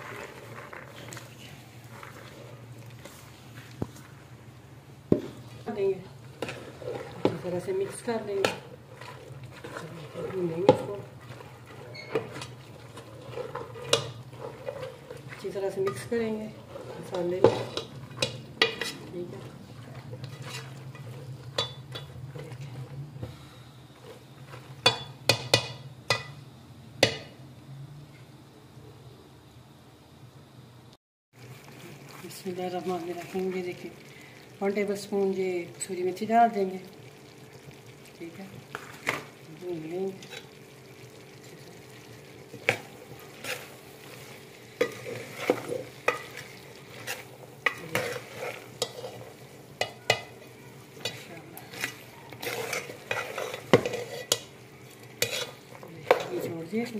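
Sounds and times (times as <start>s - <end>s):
spoon stirring in metal pot: 6.2s - 23.0s, 24.0s - 26.4s, 40.1s - 40.6s, 42.4s - 56.9s
spoon clanking against pot: 49.8s - 50.4s.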